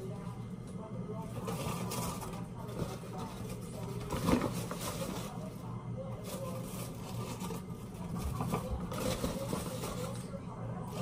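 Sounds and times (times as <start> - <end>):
plastic scoop scraping flour: 1.3 - 5.6, 6.2 - 10.2
paper bag crinkling: 1.3 - 10.3.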